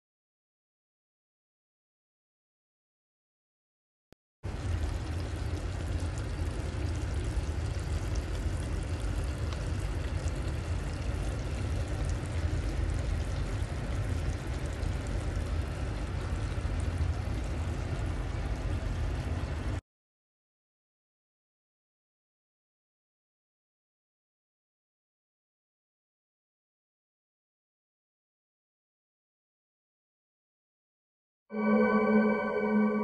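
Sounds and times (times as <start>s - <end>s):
curry bubbling in a pot: 4.5s - 19.8s.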